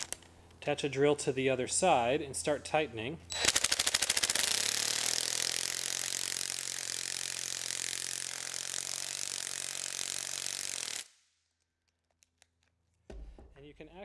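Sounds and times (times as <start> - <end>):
cordless impact driver running: 3.3 - 11.1.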